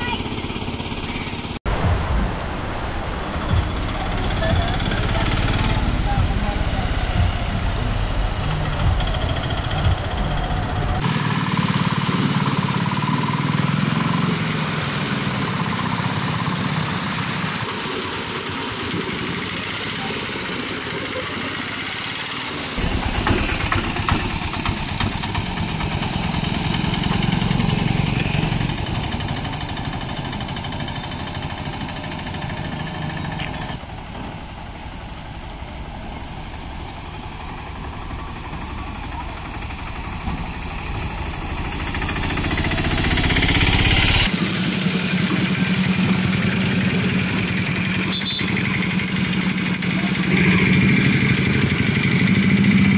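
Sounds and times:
auto-rickshaw engines running: 0:00.0 - 0:01.6, 0:03.0 - 0:52.9
people's voices: 0:00.0 - 0:01.6, 0:03.4 - 0:11.0, 0:17.7 - 0:23.2, 0:49.6 - 0:51.8
water splashing around wheels: 0:00.0 - 0:52.9.

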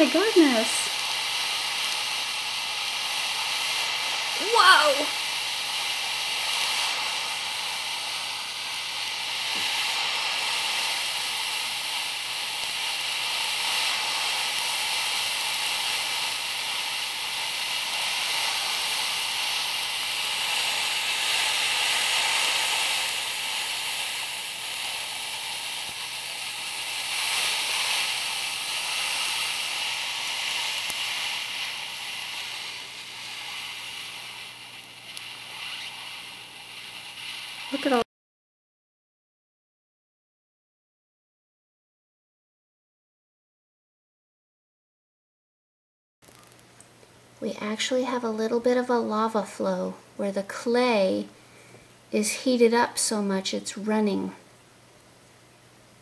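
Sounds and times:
chemical reaction hissing: 0:00.0 - 0:38.1, 0:46.2 - 0:56.0.

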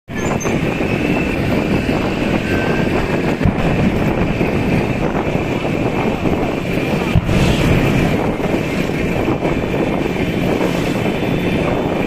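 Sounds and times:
wind buffeting microphone: 0:00.1 - 0:12.0
vehicle engine running: 0:00.6 - 0:12.0.

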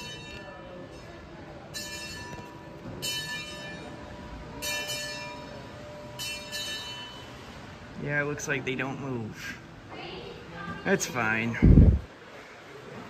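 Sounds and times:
bell ringing: 0:00.0 - 0:07.6.

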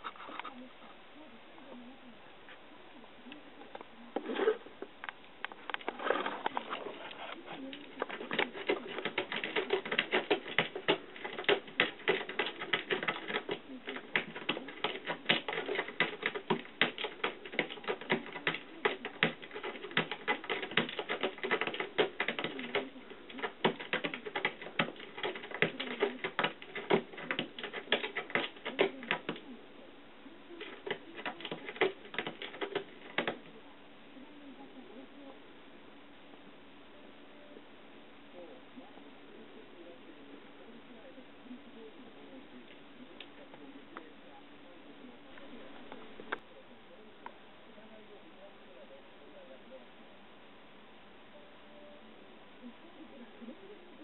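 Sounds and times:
cat scratching mat: 0:06.0 - 0:29.4, 0:30.6 - 0:33.5.

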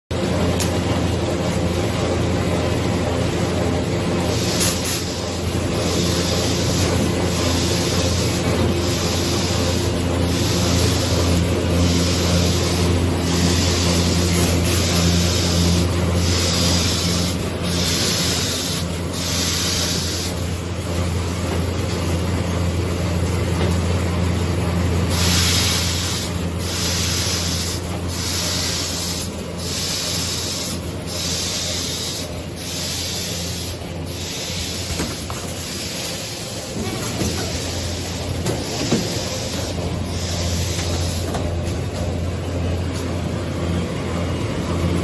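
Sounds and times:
machine motor hum: 0:00.2 - 0:45.0
short machine hisses: 0:04.3 - 0:20.5, 0:25.1 - 0:41.3.

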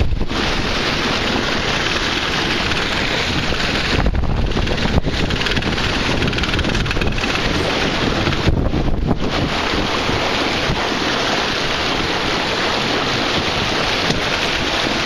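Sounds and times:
water splashing along hull: 0:00.0 - 0:15.0
wind buffeting microphone: 0:00.0 - 0:15.0.

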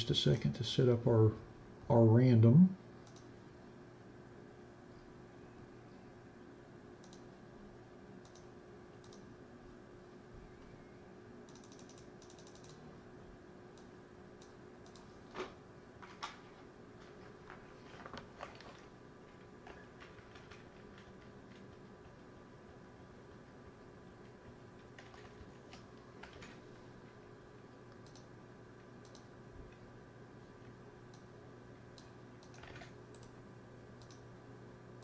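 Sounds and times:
faint steady hum: 0:00.0 - 0:35.0
keyboard keystrokes: 0:11.5 - 0:12.8.

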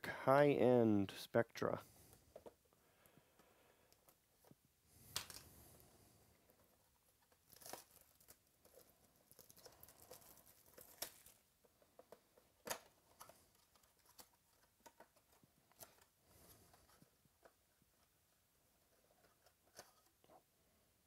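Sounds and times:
plastic wrap crinkling and tearing: 0:07.2 - 0:11.5.

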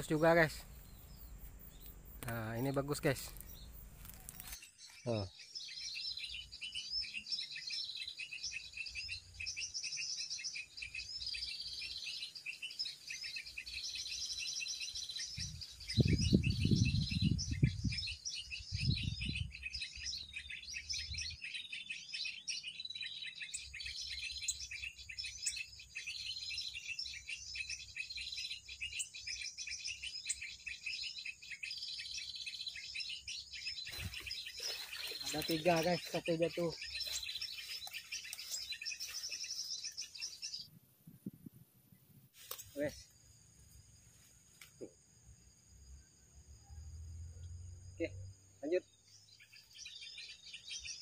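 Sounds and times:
recorded bird call: 0:00.0 - 0:41.3, 0:42.4 - 0:43.2, 0:44.6 - 0:51.0
small birds chirping: 0:00.0 - 0:51.0
wind buffeting microphone: 0:15.3 - 0:19.7, 0:40.6 - 0:41.8.

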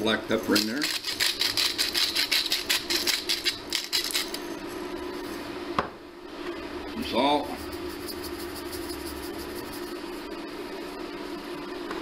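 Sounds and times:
pepper mill grinding: 0:00.4 - 0:04.5, 0:07.6 - 0:09.8.

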